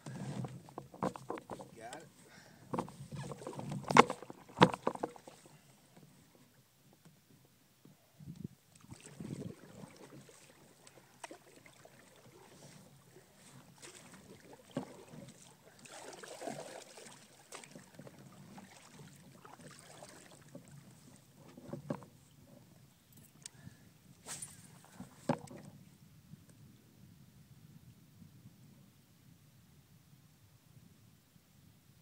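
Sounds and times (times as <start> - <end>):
water lapping against kayak: 0.0 - 6.6, 8.7 - 25.8.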